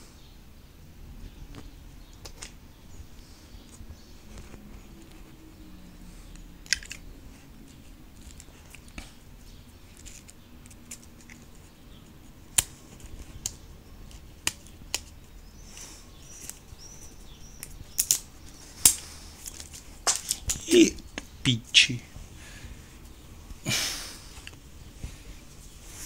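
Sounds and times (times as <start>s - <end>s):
plastic packaging rustle: 15.6s - 20.7s.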